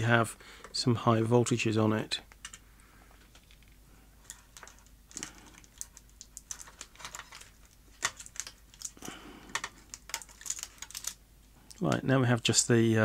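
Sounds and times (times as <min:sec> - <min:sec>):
circuit board and chassis handled: 0:03.2 - 0:11.2.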